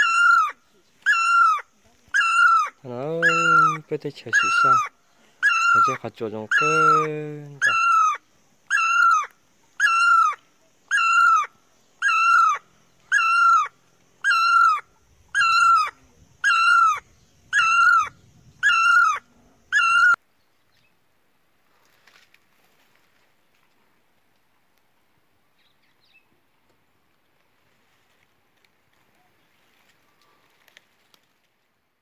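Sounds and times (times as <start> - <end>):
high-pitched animal call: 0.0 - 20.2.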